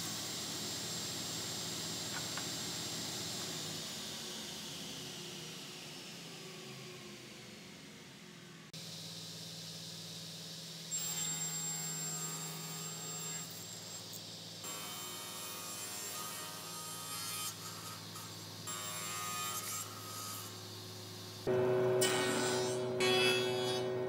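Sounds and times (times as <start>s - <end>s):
saw blade cutting wood: 10.9s - 20.6s, 21.5s - 24.0s
panel saw motor hum: 17.6s - 24.0s.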